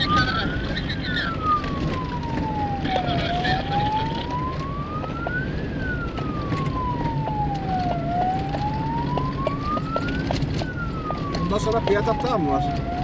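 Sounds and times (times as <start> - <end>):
vehicle engine running: 0.0 - 12.1
siren wailing: 0.0 - 13.0
vehicle rattles on dirt track: 0.0 - 13.0.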